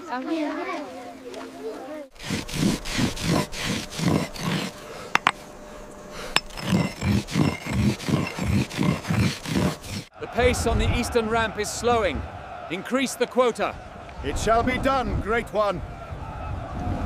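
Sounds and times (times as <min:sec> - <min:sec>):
stone scraping on stone: 0:02.1 - 0:05.5, 0:06.2 - 0:10.1.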